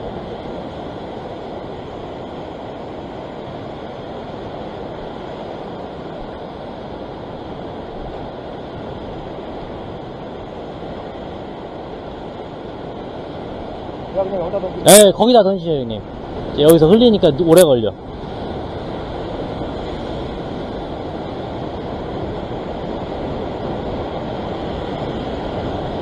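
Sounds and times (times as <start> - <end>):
ocean surf washing against rocks: 0.0 - 26.0
wind on microphone: 18.0 - 26.0.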